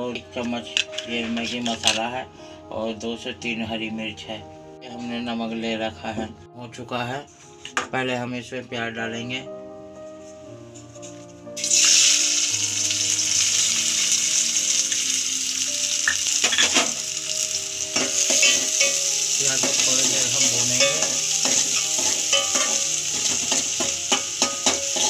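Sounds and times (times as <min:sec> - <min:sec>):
onions sizzling in hot oil: 0:11.6 - 0:25.0.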